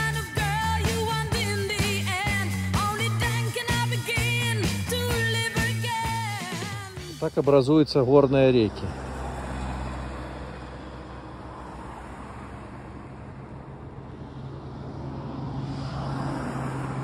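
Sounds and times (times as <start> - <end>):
wind and road noise: 7.4 - 17.0.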